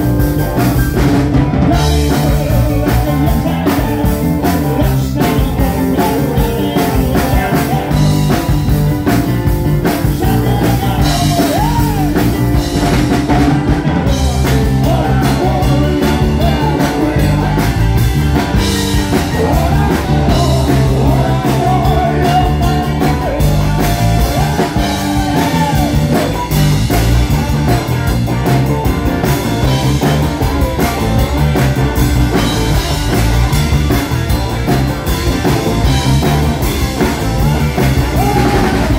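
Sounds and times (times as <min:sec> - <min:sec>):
rock band playing live: 0:00.0 - 0:38.9
male singer lead vocals: 0:01.7 - 0:08.6, 0:09.8 - 0:12.4, 0:14.0 - 0:26.6, 0:37.8 - 0:38.9.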